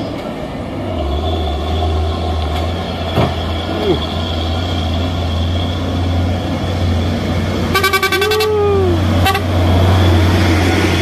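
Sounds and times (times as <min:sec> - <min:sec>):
truck engine running: 0:00.0 - 0:11.0
truck horn honking: 0:07.7 - 0:09.6.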